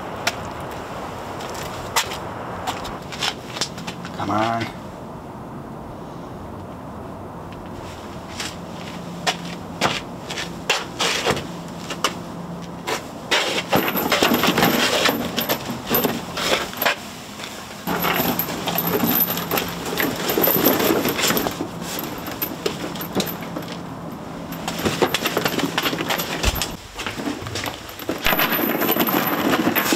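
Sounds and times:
metal chain rattling against cardboard: 13.3s - 29.9s.

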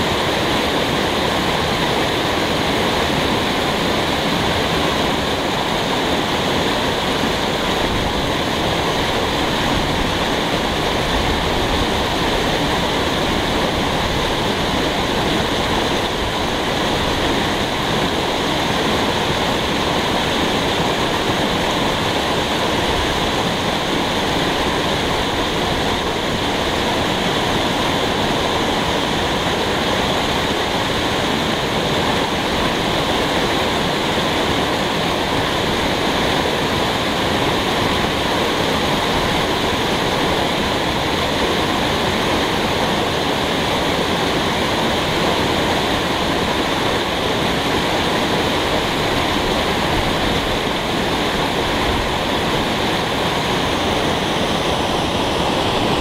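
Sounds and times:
waterfall rushing: 0.0s - 56.0s.

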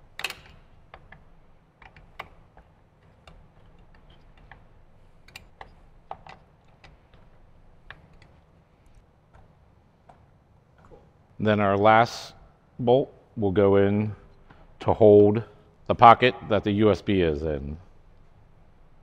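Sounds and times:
metal bolts clicking and tapping: 0.0s - 11.0s.

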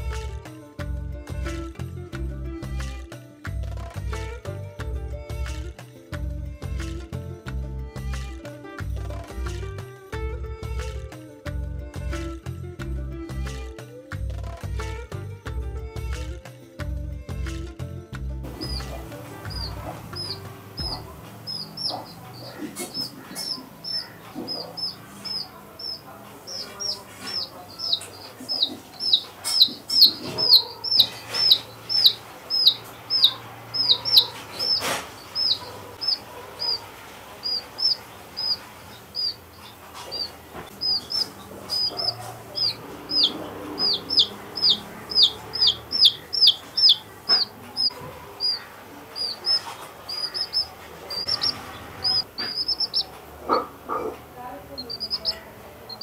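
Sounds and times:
baby chick peeping: 18.4s - 56.0s.

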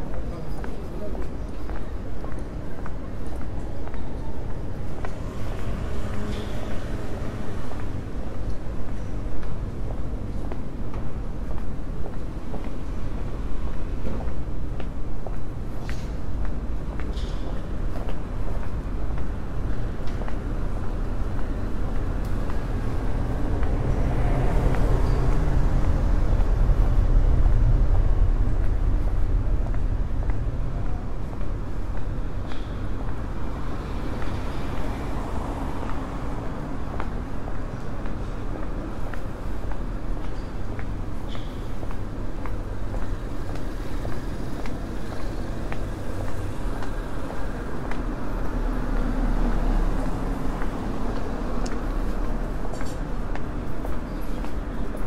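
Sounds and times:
traffic rumble: 0.0s - 55.0s.

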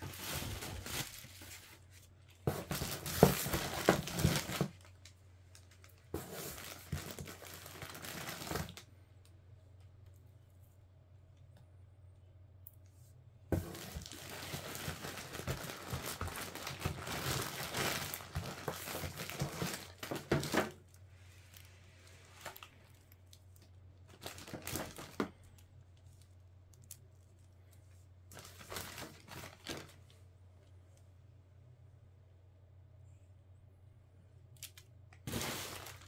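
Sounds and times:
crinkly packaging rustling: 0.0s - 8.9s, 13.5s - 30.2s, 34.6s - 36.0s.

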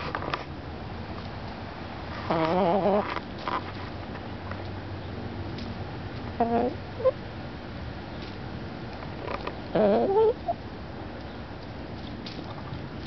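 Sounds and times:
hens calling: 2.3s - 3.1s, 6.3s - 7.2s, 9.7s - 10.6s.

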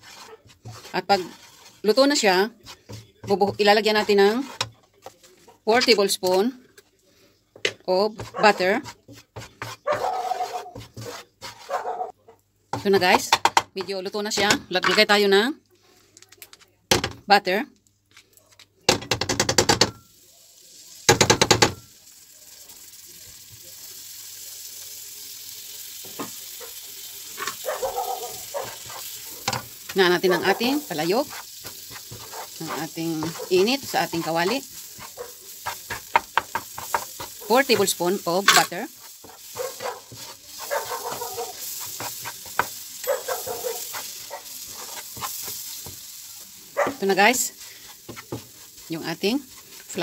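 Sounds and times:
spoon scraping plastic tub: 0.0s - 6.5s, 8.1s - 12.1s, 27.4s - 46.0s
butter sizzling in pan: 0.0s - 6.6s, 19.6s - 50.0s.

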